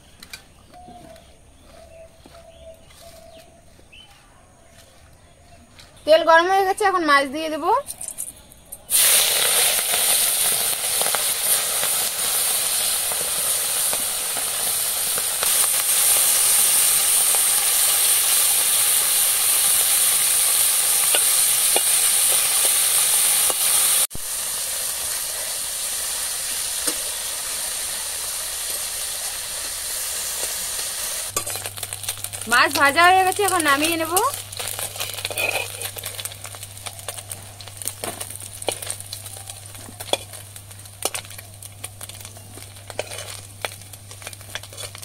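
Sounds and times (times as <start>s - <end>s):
fish frying in oil: 8.8s - 45.0s
metal spatula scraping: 33.4s - 36.6s, 42.9s - 43.5s.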